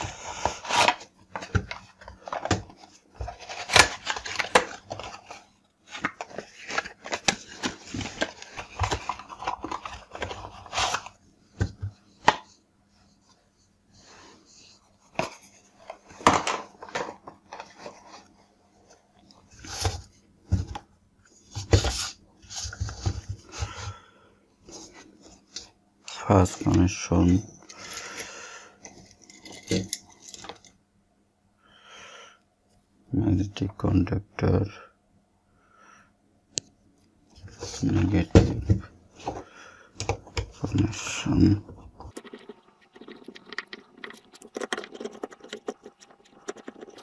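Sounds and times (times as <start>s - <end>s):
cardboard boxes rustling: 0.0s - 11.8s.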